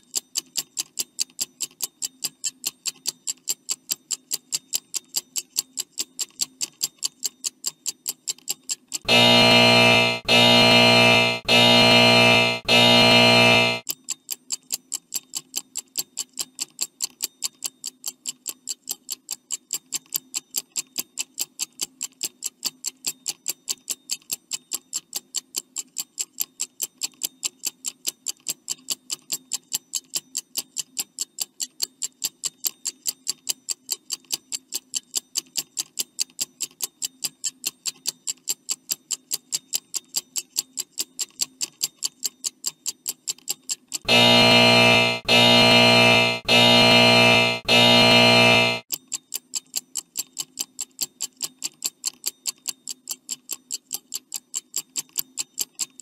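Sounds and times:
faint steady hum: 0:09.1 - 0:13.8, 0:44.1 - 0:48.8.

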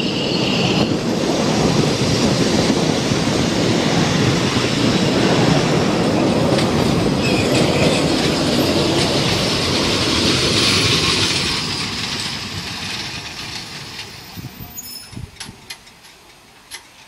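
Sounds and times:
train coaches clickety-clack: 0:00.0 - 0:17.0
short high squeaks: 0:14.3 - 0:15.3.

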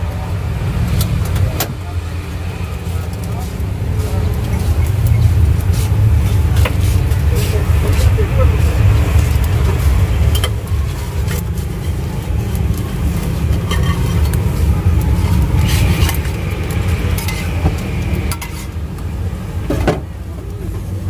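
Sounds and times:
steady low rumble: 0:00.0 - 0:21.0
spatula scraping a griddle: 0:02.9 - 0:19.0.

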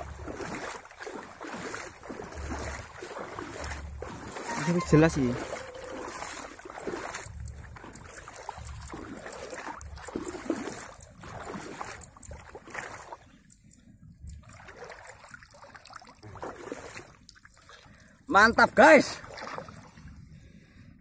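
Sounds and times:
legs wading through water: 0:00.0 - 0:20.6
hands splashing into water: 0:00.2 - 0:13.2.

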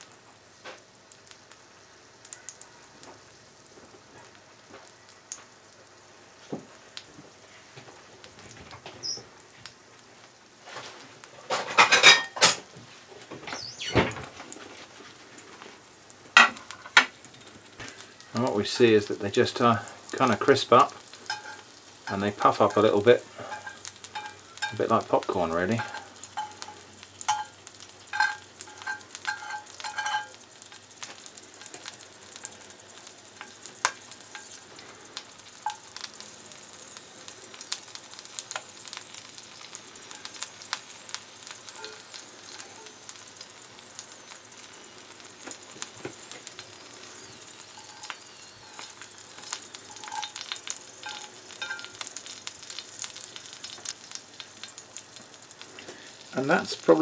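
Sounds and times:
food sizzling in oil: 0:00.0 - 0:57.0
metal fork clinking on pan: 0:21.3 - 0:22.8, 0:23.5 - 0:24.9, 0:25.8 - 0:30.4, 0:49.9 - 0:52.0.

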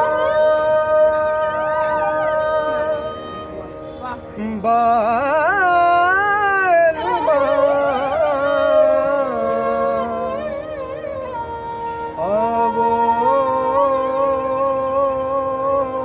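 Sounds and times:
bowed string accompaniment: 0:00.0 - 0:16.0
man singing folk melody: 0:04.0 - 0:11.2, 0:12.1 - 0:16.0.

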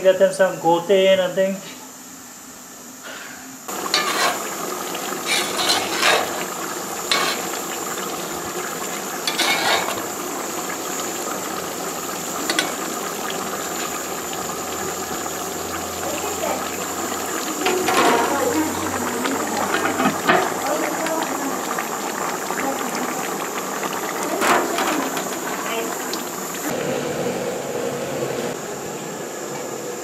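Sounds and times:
simmering pot sizzling: 0:03.6 - 0:30.0
metal spoon scraping pot: 0:03.9 - 0:04.5, 0:05.2 - 0:06.5, 0:07.1 - 0:07.6, 0:09.2 - 0:10.1.

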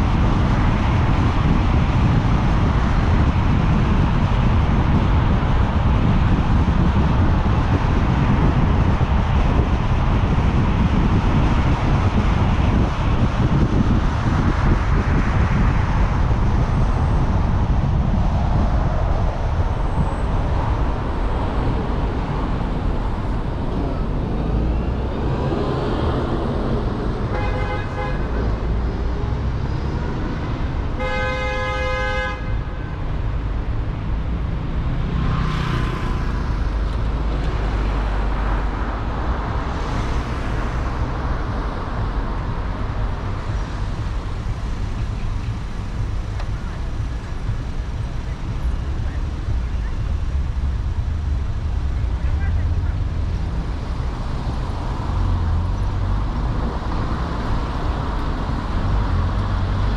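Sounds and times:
street traffic noise: 0:00.0 - 0:59.9
vehicles passing: 0:00.0 - 0:59.9
vehicle horn honking: 0:27.3 - 0:28.3, 0:31.0 - 0:32.7.

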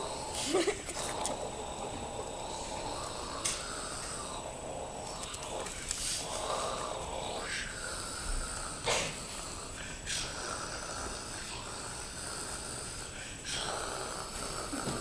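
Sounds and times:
man's sharp noisy breaths: 0:00.0 - 0:00.5, 0:01.2 - 0:15.0.

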